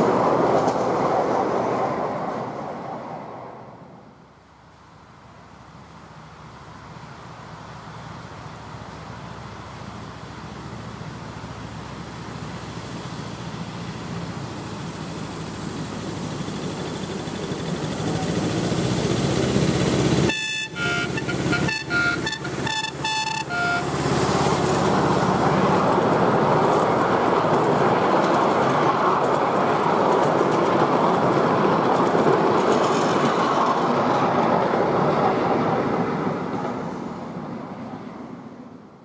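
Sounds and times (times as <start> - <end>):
train rumbling past: 0.0 - 39.0
train horn short toots: 20.3 - 24.0.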